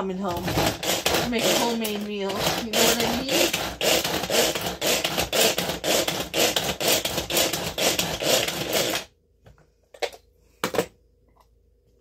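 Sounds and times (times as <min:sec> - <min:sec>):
food chopper blades whirring: 0:00.3 - 0:09.1.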